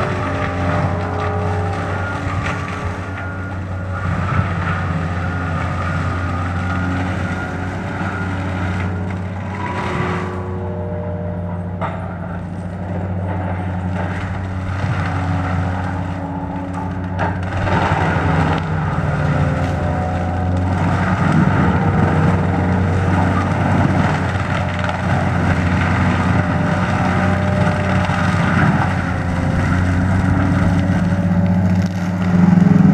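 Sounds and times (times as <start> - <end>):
wood crackling: 0.0 - 10.7, 11.6 - 32.9
diesel engine running: 0.0 - 32.9
mulcher grinding brush: 0.0 - 32.9.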